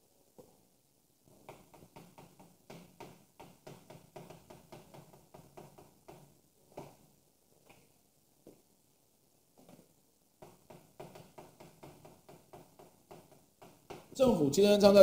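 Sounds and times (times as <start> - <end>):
chalk tapping and scraping on blackboard: 1.3 - 7.1, 9.6 - 14.2.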